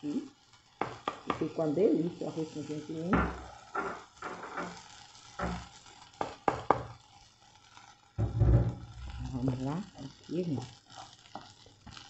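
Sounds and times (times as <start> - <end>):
faint sizzle: 0.0 - 12.0
wooden spoon scraping a pot: 3.4 - 4.8
dull thump: 8.2 - 8.8.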